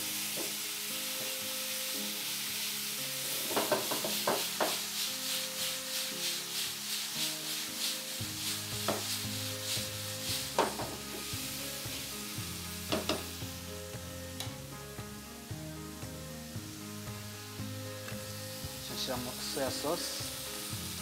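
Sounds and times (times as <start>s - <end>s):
chicken sizzling in oil: 0.0s - 21.0s
spatula scraping pan: 3.4s - 13.3s.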